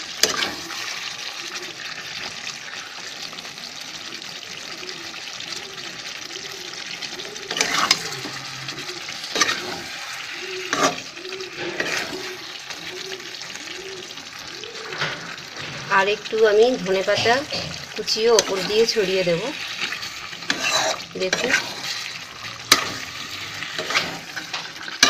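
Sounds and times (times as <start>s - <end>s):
spatula scraping a pan: 0.0s - 2.9s, 7.3s - 13.1s, 14.8s - 25.0s
curry sizzling in a pan: 0.0s - 25.0s.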